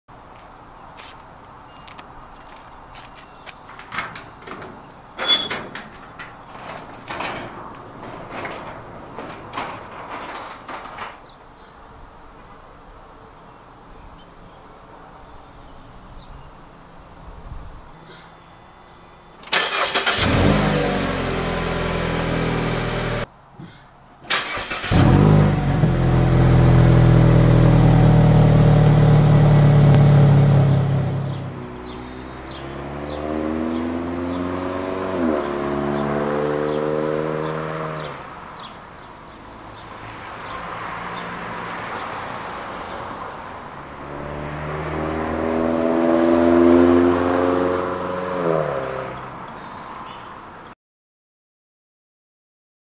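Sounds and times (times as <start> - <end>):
car engine starting and running: 19.4 - 23.3, 24.3 - 38.3, 43.8 - 49.2
cars accelerating: 19.6 - 23.3, 24.3 - 38.4, 43.8 - 49.2.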